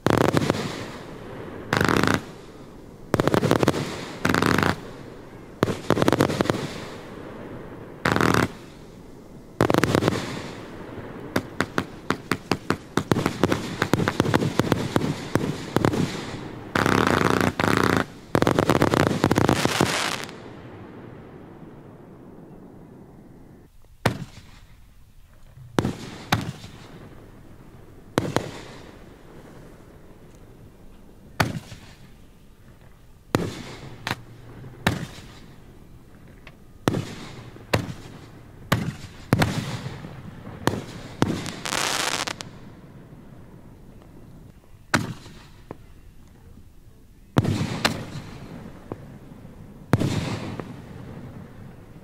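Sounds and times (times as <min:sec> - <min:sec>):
fireworks hissing crackle: 0:00.0 - 0:22.2, 0:23.4 - 0:52.0
fireworks bangs: 0:00.0 - 0:46.0, 0:47.3 - 0:52.0.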